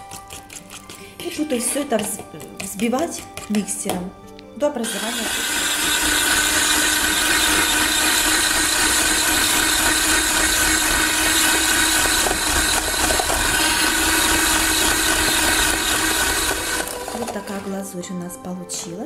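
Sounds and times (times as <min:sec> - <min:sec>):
electric hand mixer whipping: 0:04.8 - 0:17.9.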